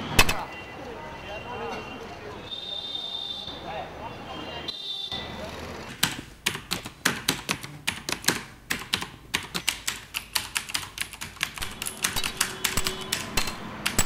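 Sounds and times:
keyboard key clicks: 6.0s - 14.0s.

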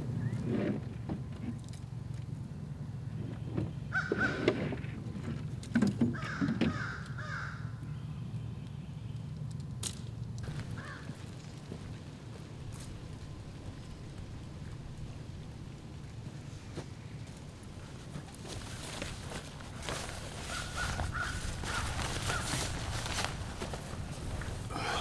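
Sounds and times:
steady low hum: 0.0s - 6.0s, 7.0s - 25.0s
crows cawing: 3.9s - 4.4s, 6.1s - 7.8s, 10.5s - 11.2s, 20.4s - 23.2s, 24.7s - 25.0s.

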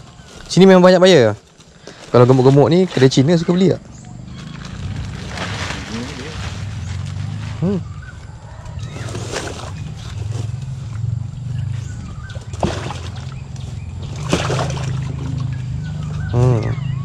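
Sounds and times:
water sloshing in a sack: 4.8s - 7.6s, 8.8s - 10.6s, 12.3s - 15.6s
fish thrashing and splashing: 8.8s - 11.0s, 12.0s - 16.1s.

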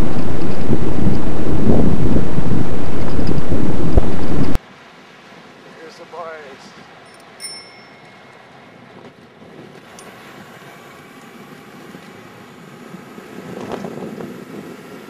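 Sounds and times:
electric bike motor running: 0.0s - 4.6s, 9.8s - 15.0s
wind buffeting microphone: 0.0s - 4.6s, 8.8s - 15.0s.

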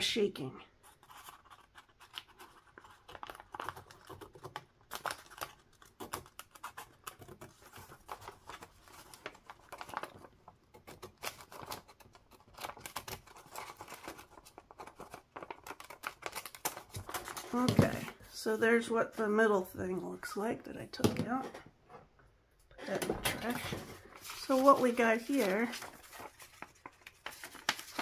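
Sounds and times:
scissors snipping paper: 0.9s - 10.1s, 10.7s - 18.0s, 24.2s - 28.0s.

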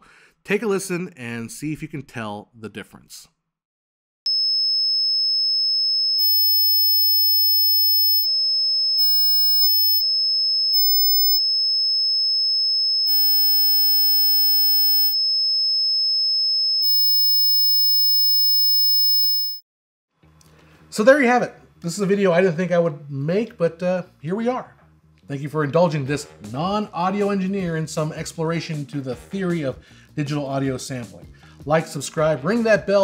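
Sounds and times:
high-pitched test tone: 6.1s - 8.4s, 9.0s - 10.1s, 10.7s - 11.4s, 13.1s - 15.2s, 16.8s - 19.6s.

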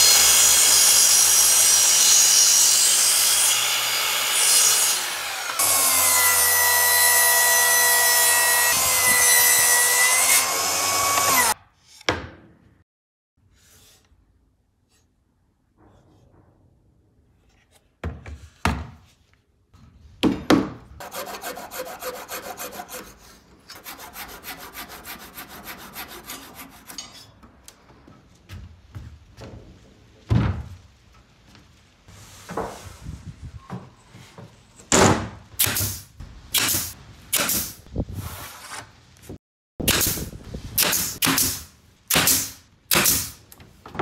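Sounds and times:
hand saw strokes: 21.0s - 27.4s.

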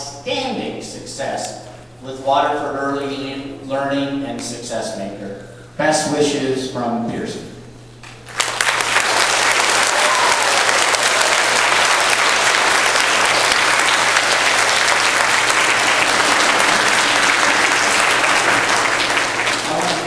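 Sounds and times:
audience applauding: 8.2s - 20.0s.

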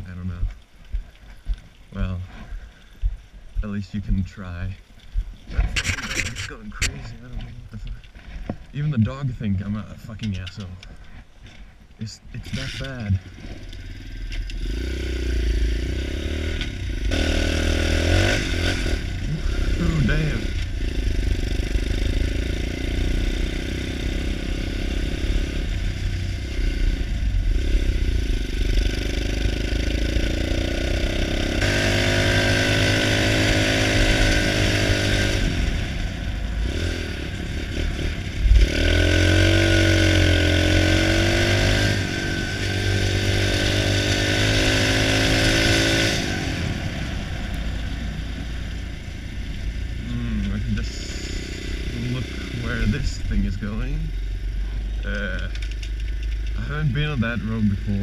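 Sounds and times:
road and wind noise: 0.0s - 58.0s
motorcycle engine revving: 12.4s - 58.0s.

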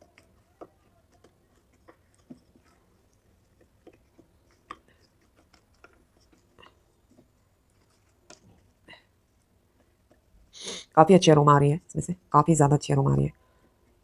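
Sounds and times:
soft clicks of clay pieces: 0.0s - 10.3s
wet clay squelching: 0.0s - 10.7s.

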